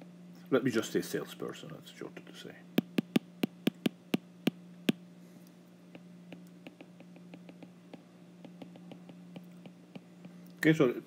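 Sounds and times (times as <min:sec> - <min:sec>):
low hum: 0:02.6 - 0:10.7
stylus tapping on glass screen: 0:02.8 - 0:04.2, 0:06.3 - 0:10.4.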